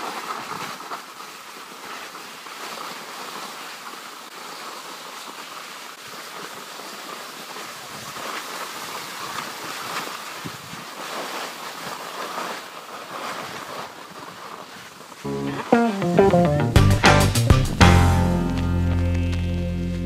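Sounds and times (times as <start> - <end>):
skis sliding over packed snow: 0.0 - 16.4.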